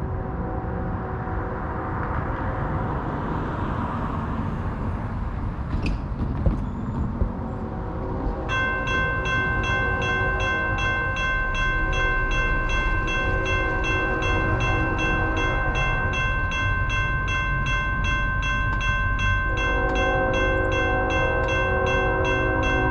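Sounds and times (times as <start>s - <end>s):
steady low rumble: 0.0s - 22.9s
railroad crossing bell ringing: 8.4s - 22.9s.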